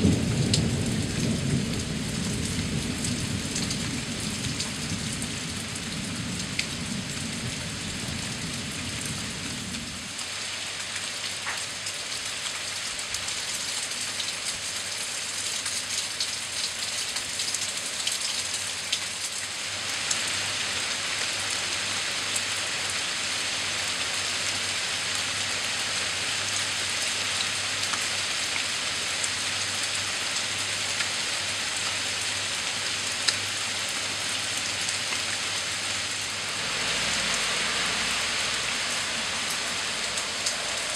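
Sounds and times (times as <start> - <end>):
thunder rumble: 0.0 - 10.0
rain on grass and leaves: 0.0 - 40.9.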